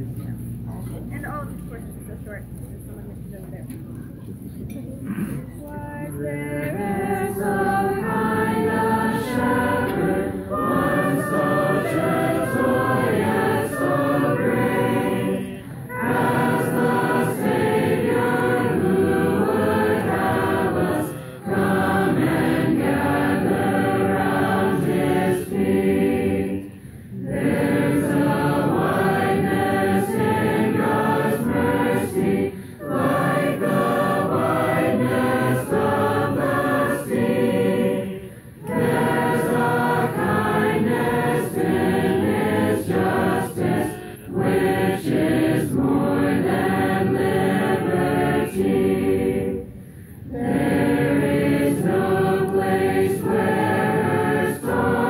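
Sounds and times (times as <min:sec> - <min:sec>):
congregation singing a hymn: 0:05.1 - 0:55.0.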